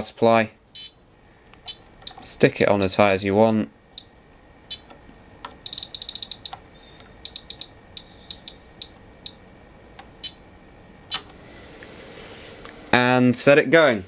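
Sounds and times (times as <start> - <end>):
power supply knob clicking: 4.8 - 9.4.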